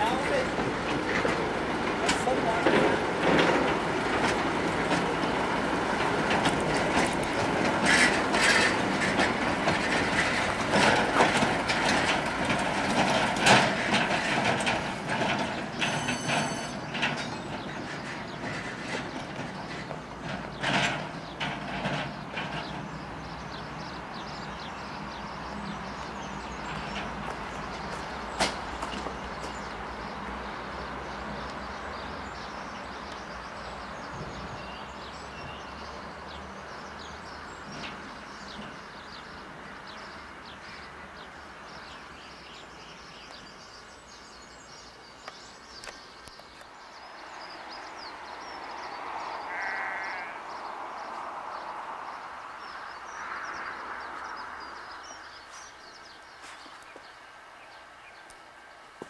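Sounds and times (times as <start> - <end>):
diesel locomotive engine running: 0.0 - 33.2
birds chirping: 13.9 - 58.5
sheep bleating: 49.5 - 50.5.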